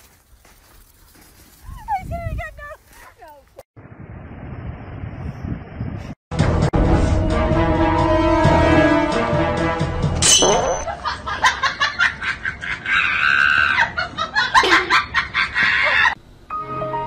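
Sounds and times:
background music: 6.3 - 10.8, 16.5 - 17.0
person laughing: 10.9 - 16.2.

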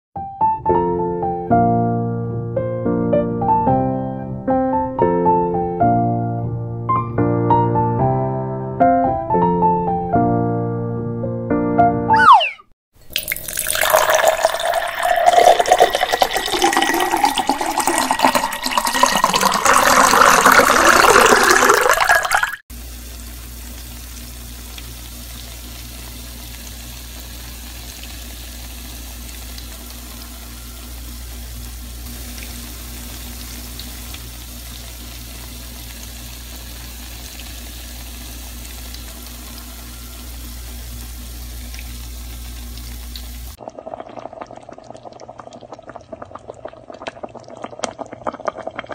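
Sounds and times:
liquid pouring into glass: 13.0 - 22.6.

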